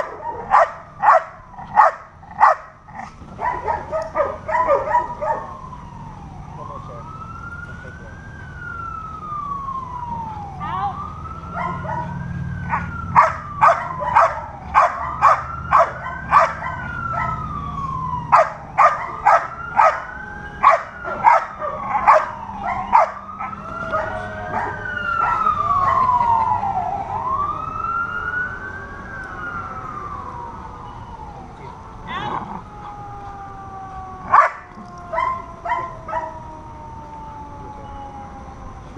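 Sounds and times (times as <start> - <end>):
dog barking: 0.0 - 5.5, 11.5 - 17.4, 18.3 - 26.0, 34.3 - 36.3
siren wailing: 0.0 - 38.9.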